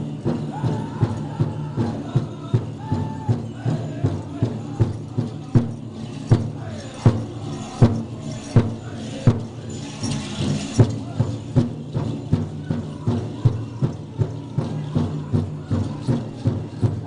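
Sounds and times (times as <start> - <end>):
group of people singing: 0.0 - 11.6
drum beaten in steady rhythm: 0.0 - 17.0.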